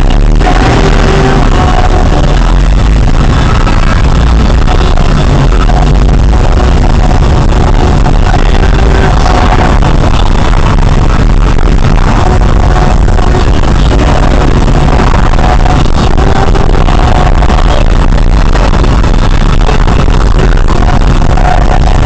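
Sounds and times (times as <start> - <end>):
loud music with heavy bass: 0.0 - 22.0.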